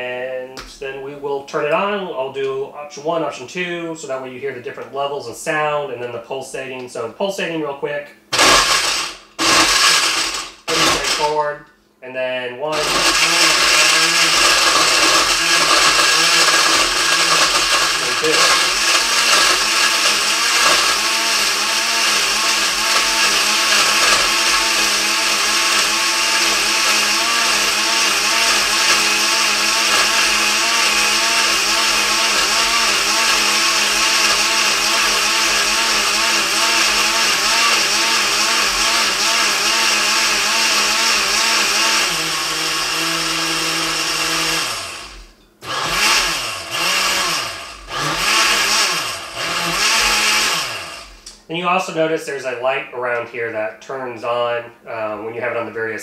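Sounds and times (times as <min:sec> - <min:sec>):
blender motor running: 0:08.3 - 0:11.4, 0:12.7 - 0:51.4.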